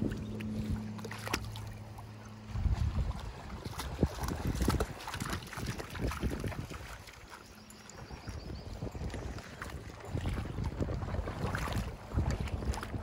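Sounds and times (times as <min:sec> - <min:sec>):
low steady hum: 0:00.0 - 0:13.0
water splashing around wading legs: 0:00.0 - 0:13.0
wind on microphone: 0:02.5 - 0:07.3, 0:07.9 - 0:13.0.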